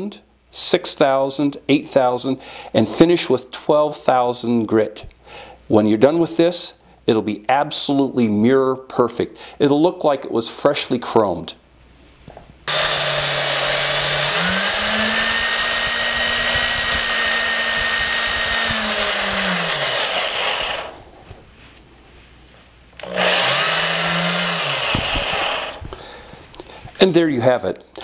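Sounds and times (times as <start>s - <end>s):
electric drill motor whine: 12.7s - 21.1s, 23.0s - 25.9s.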